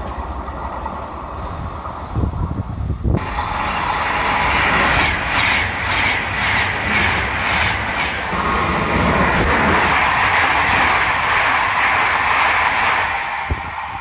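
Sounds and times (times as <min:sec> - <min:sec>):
train passing at speed: 0:00.0 - 0:14.0.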